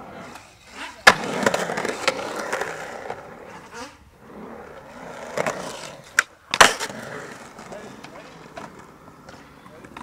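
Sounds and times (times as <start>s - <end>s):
skateboard wheels rolling on concrete: 0.0s - 10.0s
skateboard landing clack: 0.3s - 2.8s, 5.3s - 10.0s
skateboard tail snapping: 5.4s - 7.0s.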